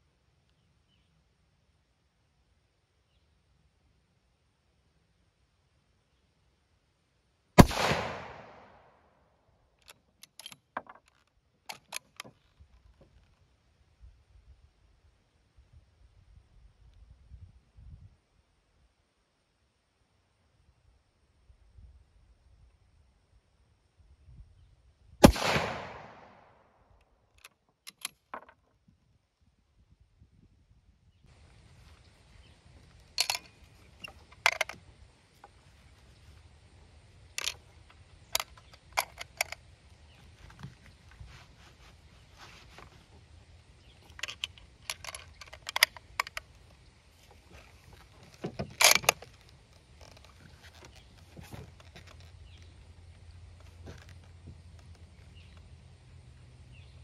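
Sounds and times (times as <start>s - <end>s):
rifle bolt clacking: 7.6s - 8.8s, 33.1s - 34.8s, 37.4s - 37.6s, 44.0s - 46.5s
rifle shot echoing: 7.6s - 9.0s, 25.2s - 26.6s
rifle bolt metallic clacks: 9.8s - 12.5s, 27.3s - 28.6s, 32.9s - 34.8s, 37.4s - 37.6s, 38.3s - 39.6s, 44.0s - 46.6s, 48.4s - 50.9s.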